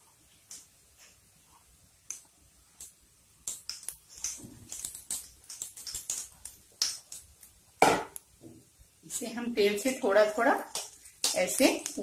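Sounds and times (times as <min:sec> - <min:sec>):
hot oil crackling: 0:00.0 - 0:12.0.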